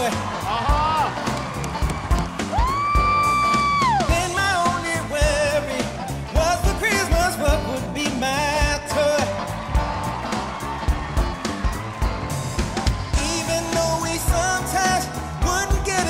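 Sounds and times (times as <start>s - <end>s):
band with steady drum beat: 0.0s - 16.0s
person singing pop song: 3.5s - 10.0s, 13.1s - 16.0s.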